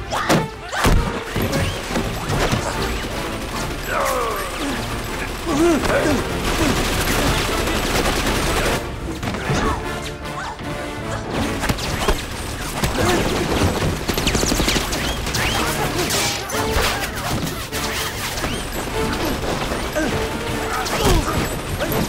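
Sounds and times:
busy film music score: 0.0s - 22.0s
fight crashes and hits: 0.2s - 2.8s.

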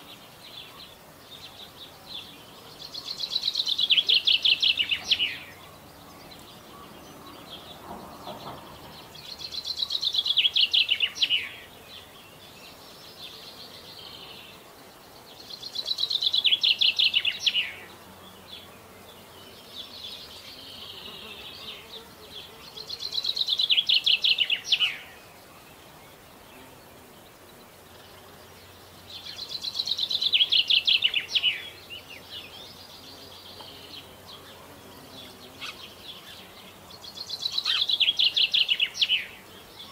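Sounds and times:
faint bird singing: 0.0s - 39.9s
songbird trilling: 2.9s - 11.7s, 15.4s - 17.9s, 22.8s - 25.2s, 29.1s - 34.6s, 35.3s - 39.9s.

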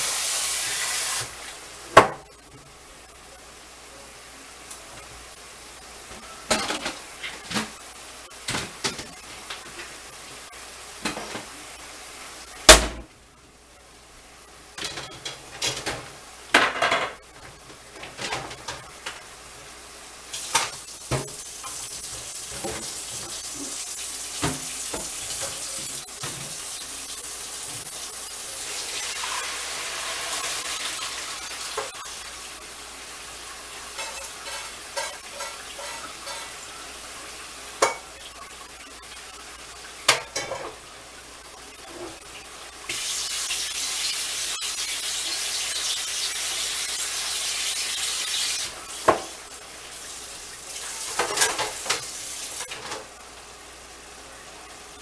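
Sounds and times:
pots and dishes clattering: 6.1s - 7.8s, 11.0s - 11.5s, 14.8s - 19.3s, 20.4s - 23.8s, 24.4s - 26.6s, 33.9s - 36.7s, 37.8s - 38.2s, 40.0s - 40.8s, 50.8s - 53.1s.

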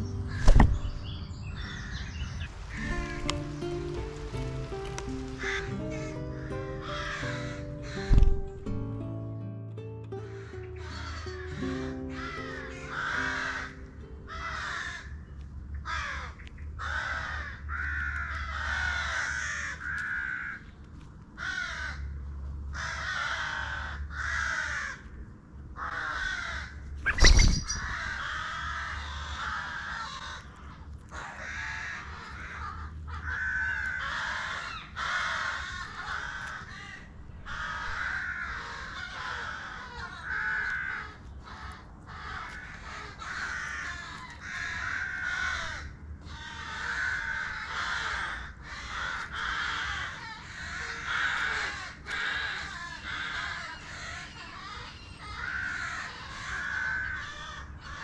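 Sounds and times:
crows cawing: 0.3s - 8.4s, 10.2s - 58.0s
sharp knock: 0.4s - 0.8s.

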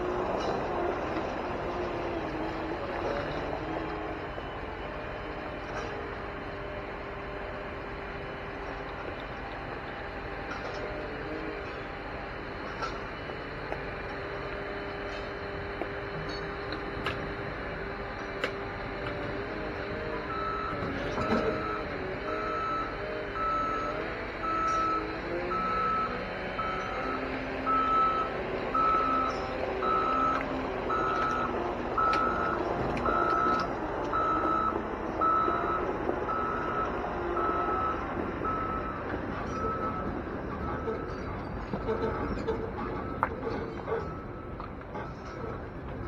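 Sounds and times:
diesel engine revving: 0.0s - 46.0s
reversing alarm beeping: 19.2s - 45.3s.

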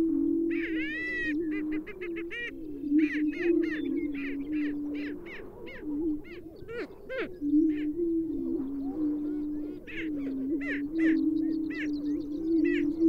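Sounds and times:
sharp cackling bird calls: 0.6s - 7.9s, 9.7s - 13.0s
low booming bird chorus: 0.6s - 13.0s.

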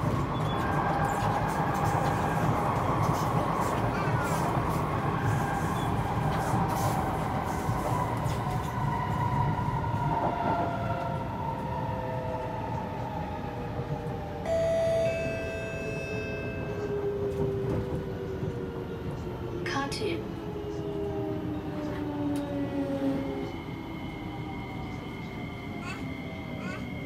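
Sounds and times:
high-pitched tone: 14.5s - 17.0s.

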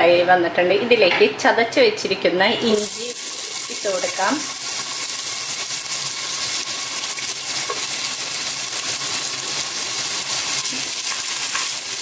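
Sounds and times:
ginger sizzling in hot oil: 2.6s - 12.0s.

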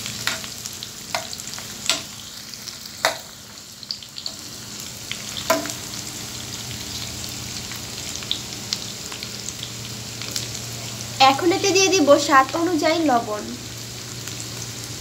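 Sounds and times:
onions sizzling in hot oil: 0.0s - 15.0s
spatula knocking against pan: 1.1s - 2.1s, 3.0s - 3.3s, 5.5s - 5.8s.

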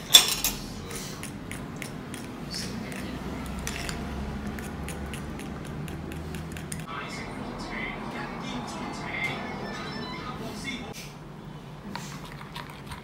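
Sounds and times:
spoon stirring batter in bowl: 0.9s - 6.9s.

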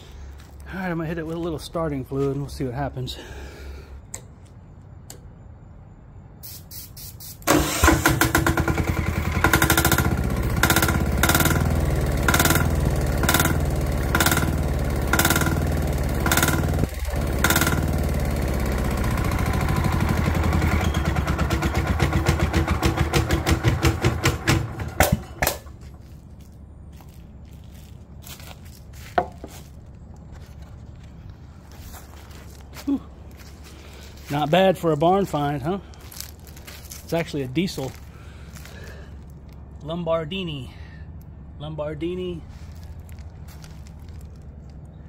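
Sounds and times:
electric starter cranking: 7.4s - 25.8s
diesel engine running roughly: 7.5s - 26.2s.

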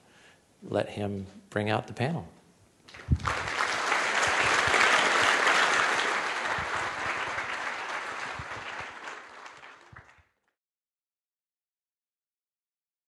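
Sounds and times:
audience applauding: 2.9s - 10.4s.

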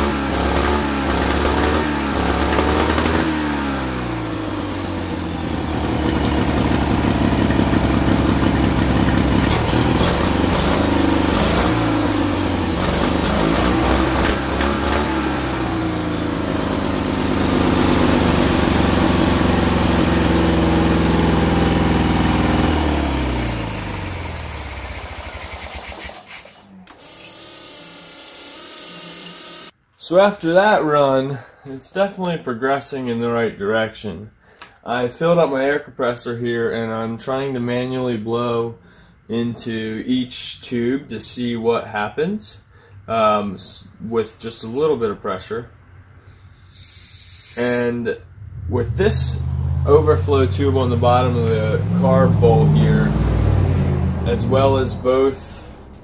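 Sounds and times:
engine revving: 0.0s - 27.2s, 46.1s - 56.0s.

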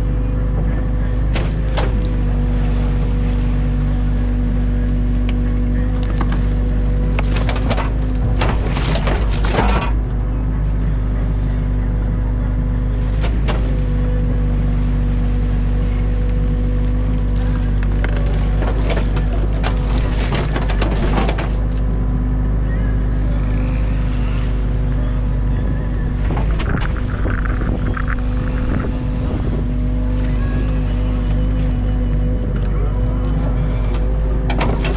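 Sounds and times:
excavator diesel engine running: 0.0s - 34.9s
bucket clunking and scraping mud: 7.1s - 10.1s, 17.2s - 21.9s.

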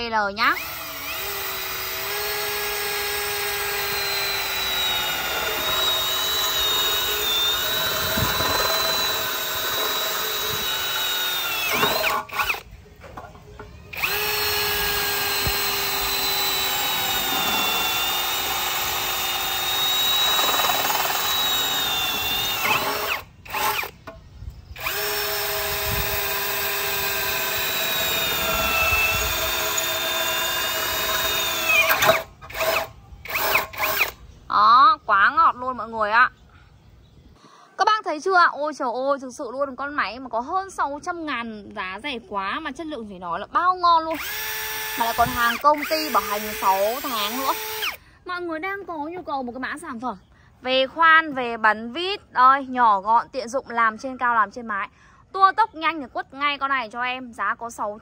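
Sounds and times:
cordless drill drilling into steel: 0.5s - 12.7s, 13.9s - 24.0s, 24.8s - 34.2s, 44.1s - 48.0s.

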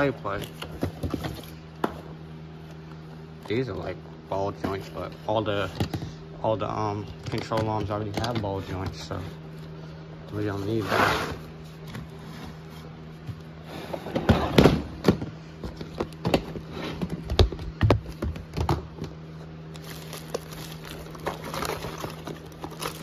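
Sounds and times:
steady low hum: 0.0s - 23.0s
plastic bags crinkling: 19.7s - 23.0s.

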